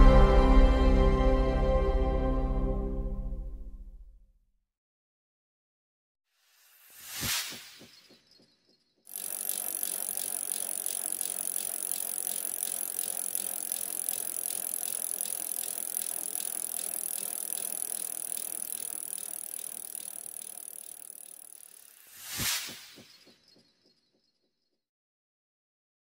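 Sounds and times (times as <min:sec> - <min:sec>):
faint regular ticks: 0:09.1 - 0:22.0
mechanical rattling: 0:09.1 - 0:22.0.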